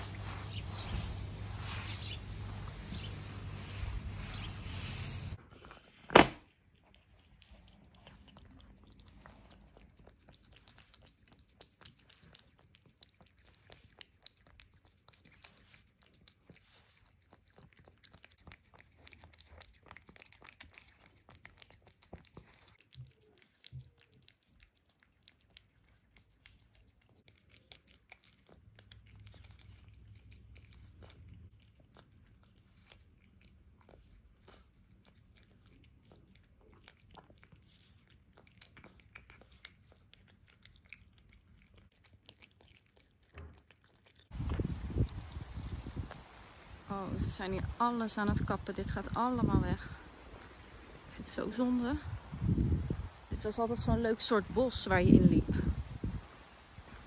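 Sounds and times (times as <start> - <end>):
dogs crunching food: 5.4 - 46.9.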